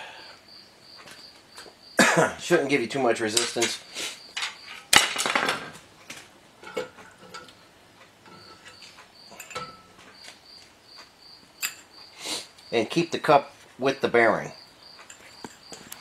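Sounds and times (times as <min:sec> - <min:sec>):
light metallic clinks: 0:08.3 - 0:10.0.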